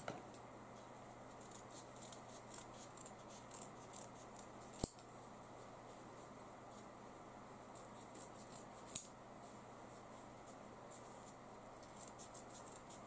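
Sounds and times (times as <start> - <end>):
scissors snipping fabric and paper: 1.3 - 5.0, 7.8 - 9.1, 11.8 - 13.0.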